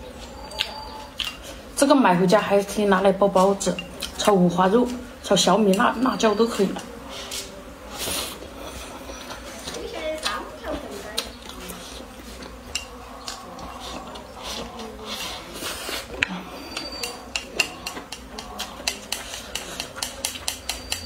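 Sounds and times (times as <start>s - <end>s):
chopsticks clicking on porcelain bowl: 12.7s - 13.4s, 16.7s - 21.0s.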